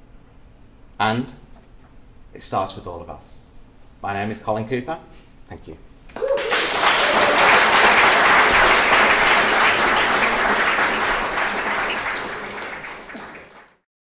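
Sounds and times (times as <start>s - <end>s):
audience applauding: 6.1s - 13.8s.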